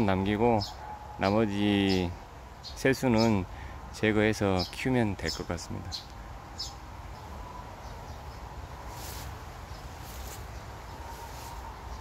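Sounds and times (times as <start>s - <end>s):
leaves rustling: 4.6s - 12.0s.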